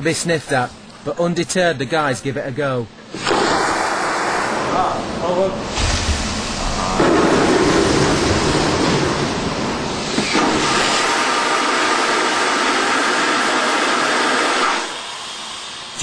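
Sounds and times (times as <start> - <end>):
vacuum toilet flushing hiss: 3.1 - 5.0, 5.6 - 16.0.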